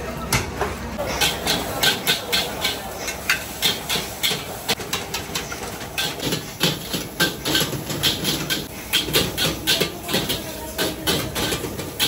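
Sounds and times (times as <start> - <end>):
food sizzling: 1.0 - 12.0
metal utensils scraping a wok: 1.0 - 12.0.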